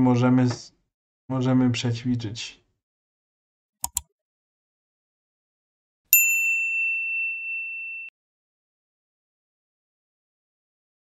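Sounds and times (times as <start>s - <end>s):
mouse clicks: 3.8s - 4.1s
bell-like ding: 6.1s - 8.2s.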